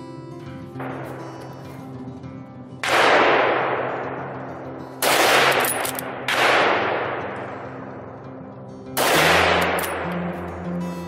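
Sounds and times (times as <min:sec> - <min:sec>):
rifle shots echoing: 0:00.8 - 0:01.7, 0:02.8 - 0:08.2, 0:09.0 - 0:10.4.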